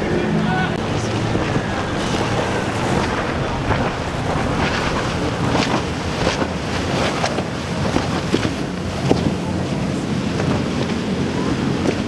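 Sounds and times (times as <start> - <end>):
wind buffeting microphone: 0.6 - 9.1
waves washing: 0.7 - 8.4
boat engine running: 0.7 - 12.0
splashes: 0.8 - 8.4.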